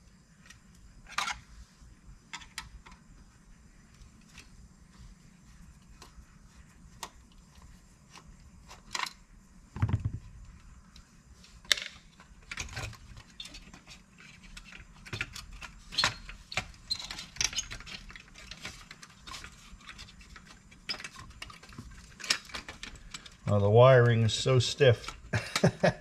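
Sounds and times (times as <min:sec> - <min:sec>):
small metal parts clicking: 0:11.6 - 0:23.5.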